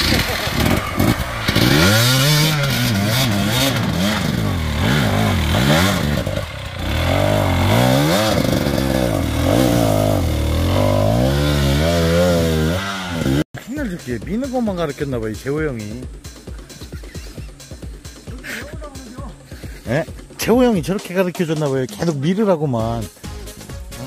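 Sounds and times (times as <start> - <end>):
dirt bike engine revving: 0.0 - 13.4.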